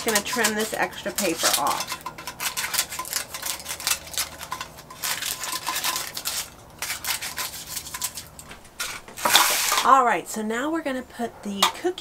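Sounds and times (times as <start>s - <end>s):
metal pans handled on counter: 0.0s - 6.4s
scissors snipping paper: 0.0s - 8.3s
paper crinkling: 0.0s - 9.8s.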